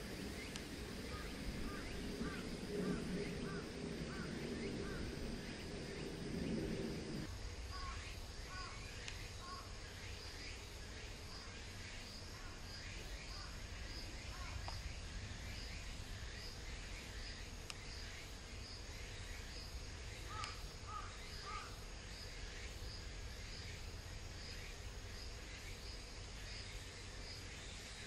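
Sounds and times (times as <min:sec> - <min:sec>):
low steady rumble: 0:00.0 - 0:07.8
insect chirping: 0:00.0 - 0:28.0.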